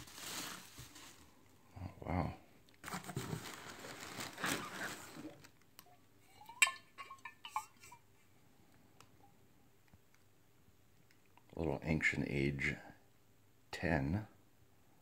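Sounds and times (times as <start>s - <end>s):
packing peanuts rustling: 0.0s - 1.6s, 2.8s - 5.6s
glass bottle clinking: 6.4s - 8.0s.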